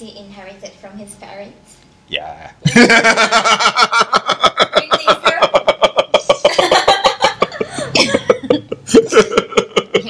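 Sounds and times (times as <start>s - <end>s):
man and woman laughing: 2.6s - 10.0s.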